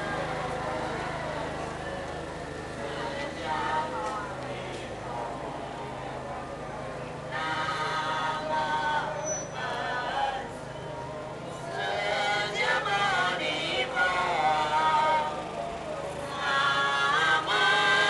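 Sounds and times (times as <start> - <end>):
group chanting a hymn: 2.8 - 5.9, 7.3 - 10.6, 11.5 - 18.0.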